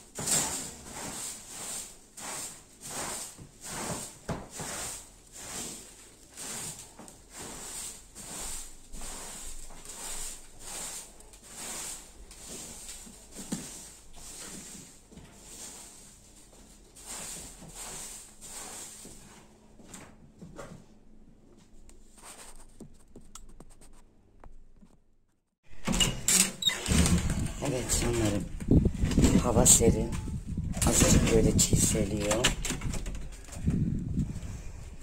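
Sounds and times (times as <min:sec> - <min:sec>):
hand broom sweeping carpet: 0:00.0 - 0:20.0, 0:21.6 - 0:22.8.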